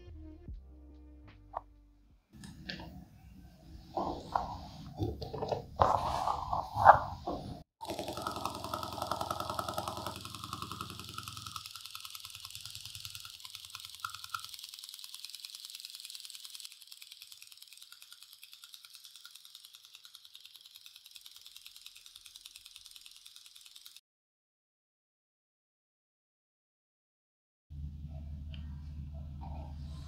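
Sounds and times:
motor crank mechanical rattle: 7.8s - 24.0s.

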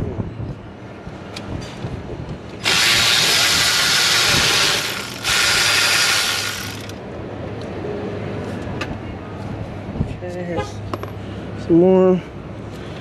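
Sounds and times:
power ratchet spinning out bolts: 2.6s - 7.0s.

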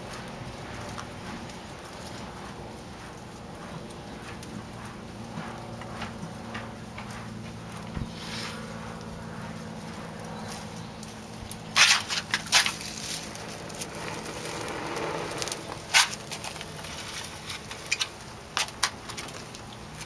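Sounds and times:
soft rushing of fire: 0.0s - 20.0s
tinder crackling and snapping: 0.0s - 20.0s.

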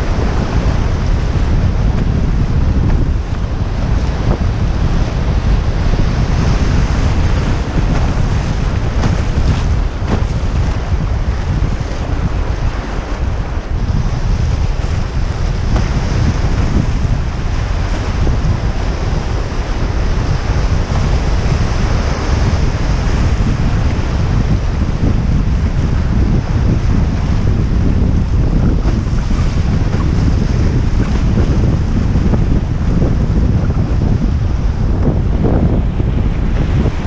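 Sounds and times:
wind rumbling on microphone: 0.0s - 37.0s.

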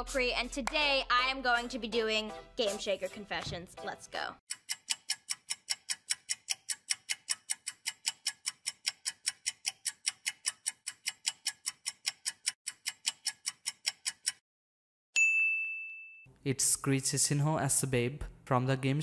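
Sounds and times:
countdown timer ticking: 0.0s - 14.4s.

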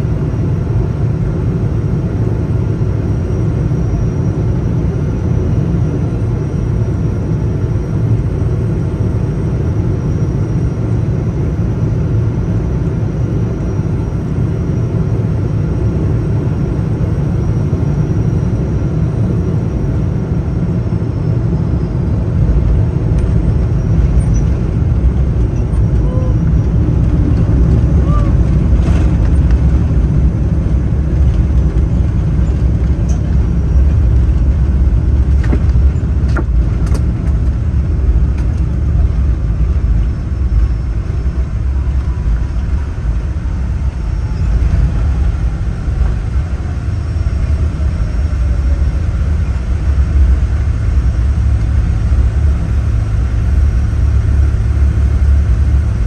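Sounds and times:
jet engines rumbling: 0.0s - 56.0s
faint high whine: 38.6s - 56.0s.

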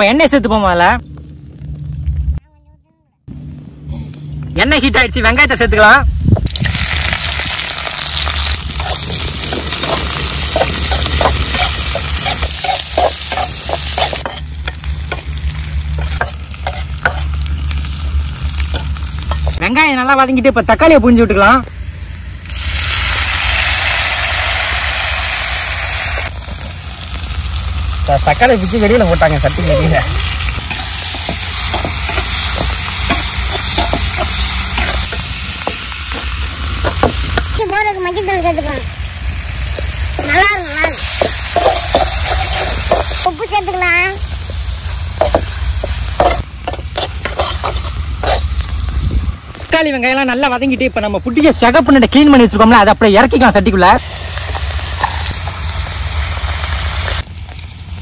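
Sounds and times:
onions sizzling in oil: 6.4s - 58.0s
spoon scraping and knocking pan: 8.8s - 15.2s, 30.7s - 37.2s, 41.0s - 43.2s, 45.2s - 48.5s
spoon scraping against pan: 10.6s - 14.8s, 46.2s - 48.5s.

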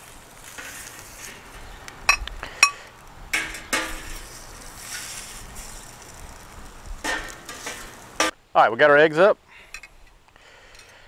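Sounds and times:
metal turner scraping pan: 0.4s - 2.8s, 3.4s - 8.3s
sharp clinks: 2.1s - 2.8s.

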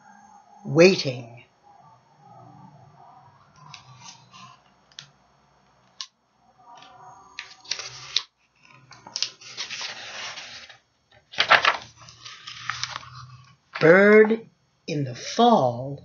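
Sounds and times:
book pages turning and rustling: 6.8s - 14.3s.

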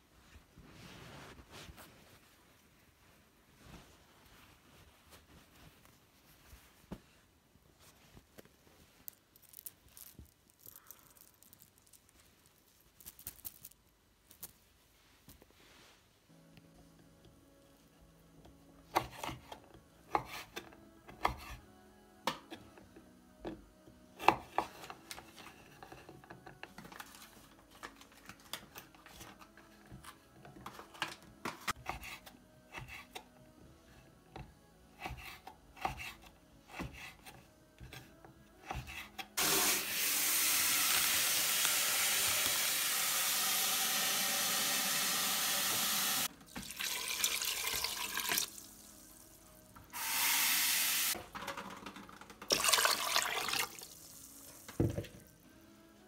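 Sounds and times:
running water: 39.4s - 48.9s, 52.5s - 54.7s.

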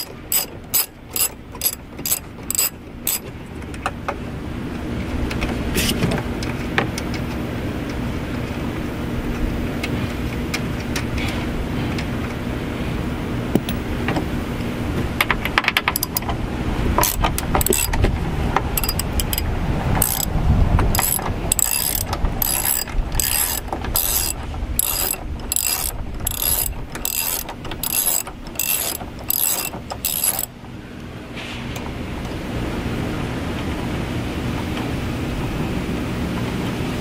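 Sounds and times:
socket ratchet clicking: 0.0s - 3.3s, 15.7s - 16.3s, 17.0s - 18.0s, 18.7s - 30.5s.

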